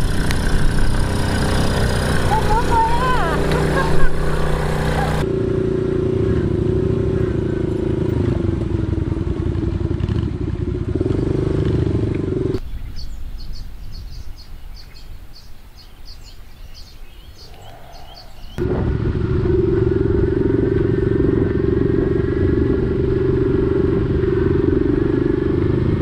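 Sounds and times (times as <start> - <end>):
dirt bike engine running: 0.0 - 12.7, 18.2 - 26.0
distant motorbike engine: 0.0 - 13.1, 15.4 - 26.0.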